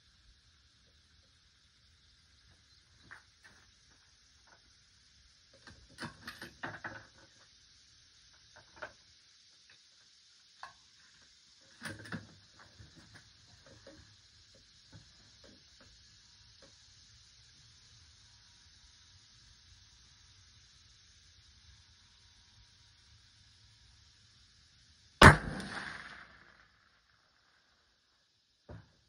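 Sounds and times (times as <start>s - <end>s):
steady low hiss: 0.0s - 29.0s
faint scattered clicks and clatter: 5.4s - 17.6s.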